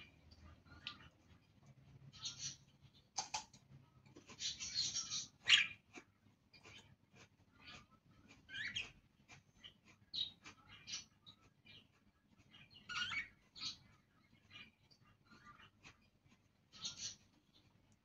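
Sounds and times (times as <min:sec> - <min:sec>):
budgerigars chattering: 0:04.4 - 0:05.8, 0:07.6 - 0:09.0, 0:16.8 - 0:17.2.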